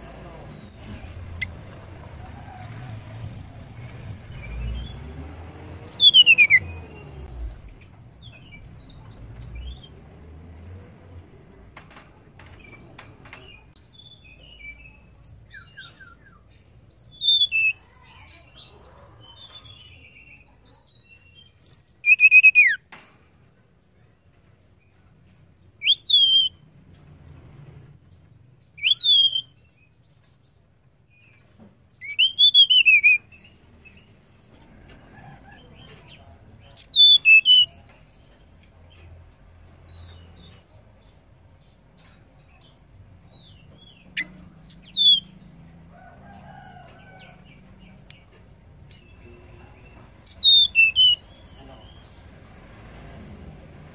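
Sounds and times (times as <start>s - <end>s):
bird whistled calls: 5.8s - 6.7s, 21.6s - 22.8s, 25.8s - 26.6s, 28.8s - 29.6s, 32.0s - 33.3s, 36.5s - 37.8s, 44.2s - 45.3s, 50.0s - 51.2s.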